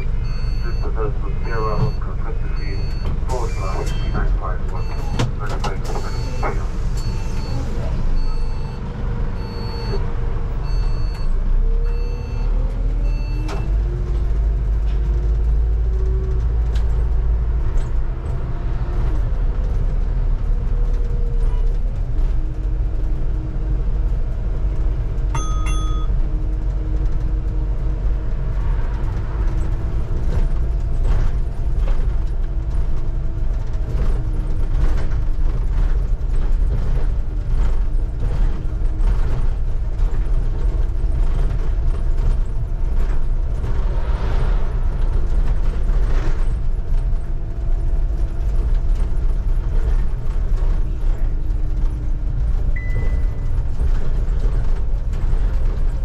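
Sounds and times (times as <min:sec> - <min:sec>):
bus engine and road rumble: 0:00.0 - 0:56.0
short electronic beep: 0:00.2 - 0:05.2, 0:25.4 - 0:26.1.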